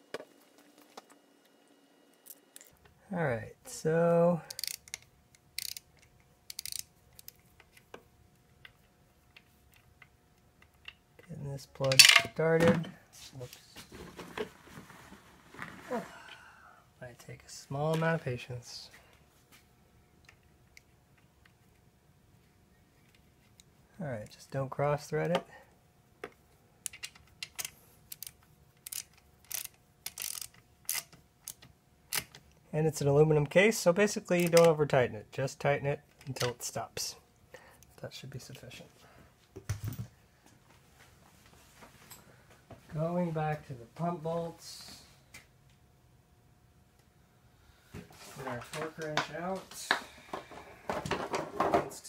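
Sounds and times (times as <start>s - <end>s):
ratcheting wrench clicking: 4.5s - 5.0s, 5.6s - 5.9s, 6.5s - 7.4s, 26.9s - 32.3s.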